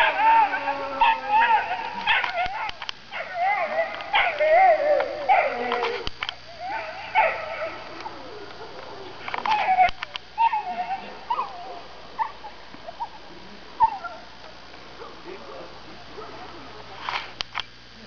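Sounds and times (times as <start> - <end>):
dog whining and yipping: 9.5 - 12.3.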